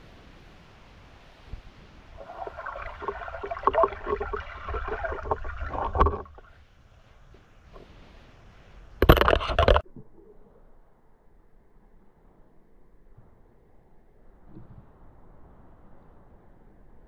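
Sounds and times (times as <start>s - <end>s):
underwater bubbling and crackles: 1.5s - 10.7s
low underwater rumble: 2.2s - 6.6s.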